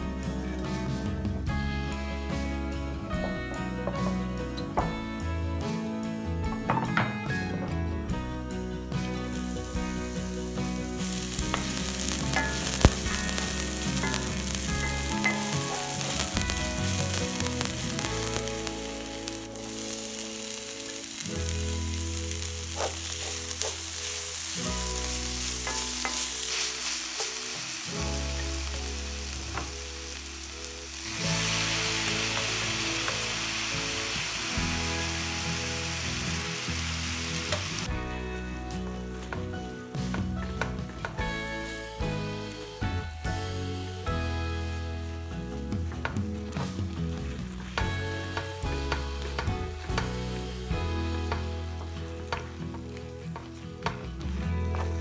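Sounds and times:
vegetables sizzling in oil: 9.2s - 38.0s, 41.6s - 55.0s.

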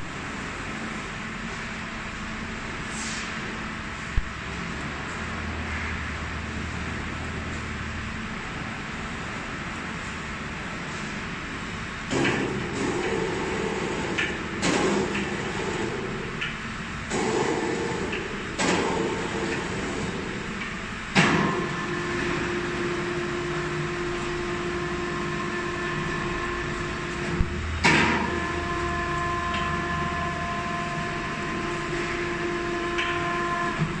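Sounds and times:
hoist motor clunk: 12.1s - 22.5s, 27.2s - 28.6s.

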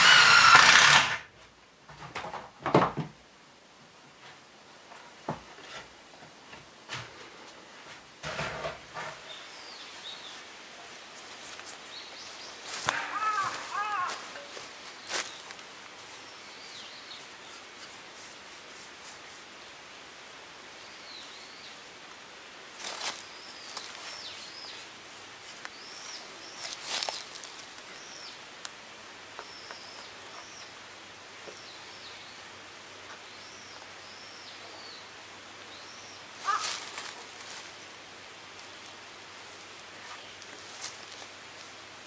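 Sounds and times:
small birds chirping: 9.2s - 18.0s, 22.8s - 28.6s, 29.3s - 37.7s
paintbrush scraping on wood: 17.1s - 19.5s.

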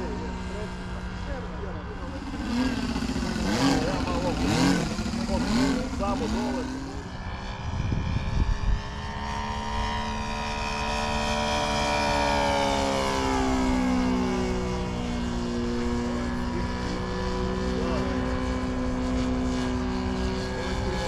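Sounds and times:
low rumbling bursts: 0.0s - 9.0s
model plane engine droning: 0.0s - 21.0s.

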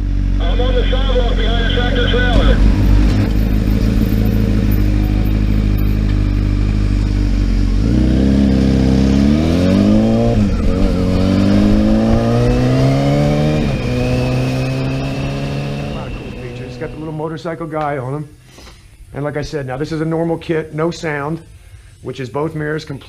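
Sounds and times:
motorcycle engine revving: 2.2s - 17.4s.

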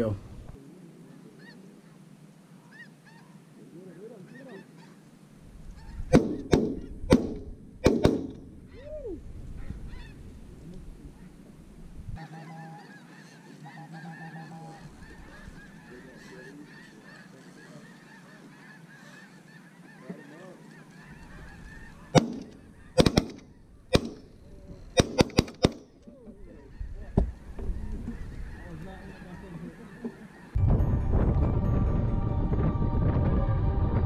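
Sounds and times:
geese honking: 0.7s - 5.1s, 5.7s - 6.9s, 9.6s - 11.5s, 12.2s - 30.6s
shotgun shots: 6.1s - 8.5s, 22.1s - 24.3s, 25.0s - 25.9s.

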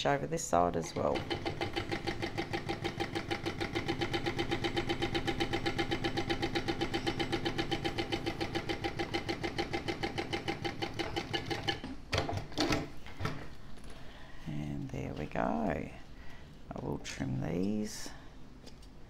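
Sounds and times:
sewing machine stitching: 0.8s - 12.9s.

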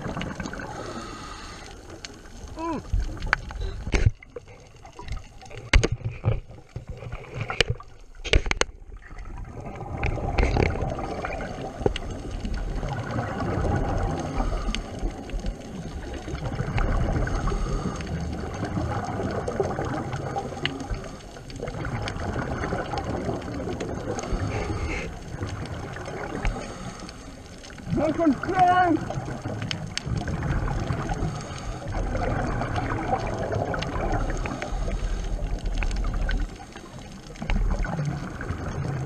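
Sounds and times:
sharp clicks and knocks: 3.2s - 8.8s
regulator exhaust bubbles gurgling: 8.9s - 26.6s, 29.1s - 39.0s.

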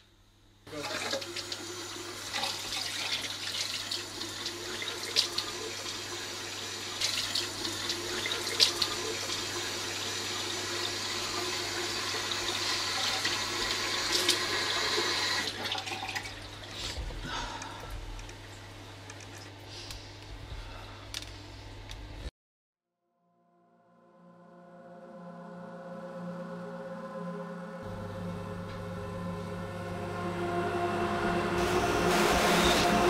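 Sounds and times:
tap water running into sink: 0.7s - 19.5s.

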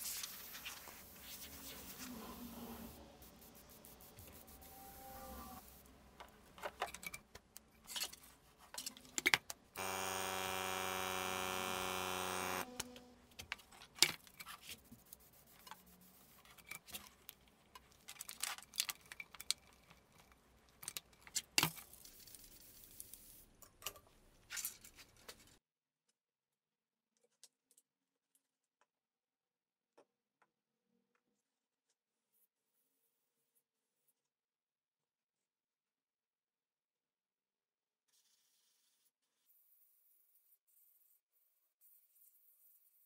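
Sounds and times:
airbrush compressor running: 9.8s - 13.2s.

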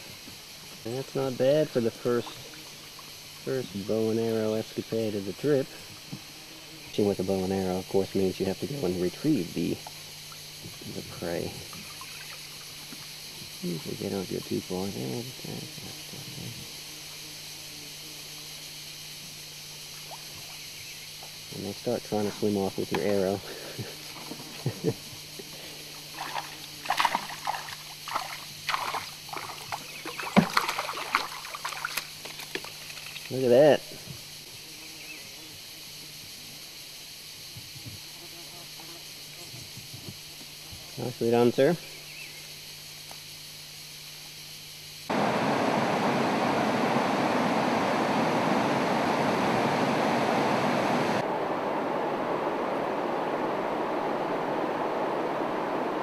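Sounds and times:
water splashing from paddling: 26.0s - 33.3s
waterfall roaring: 45.1s - 56.0s.

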